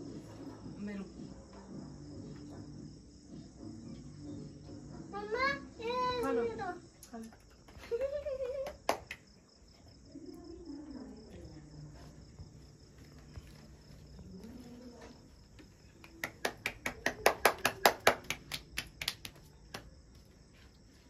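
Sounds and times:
rapid rhythmic hand clapping: 8.5s - 9.3s, 15.9s - 20.0s.

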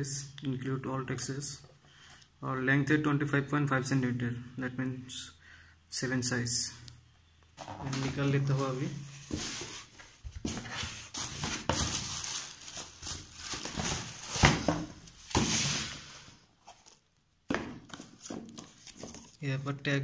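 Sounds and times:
tissue paper rustling: 7.9s - 17.0s.

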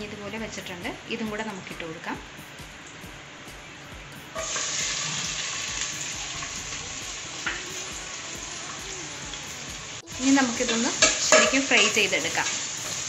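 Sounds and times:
onions sizzling in hot oil: 4.2s - 13.0s.

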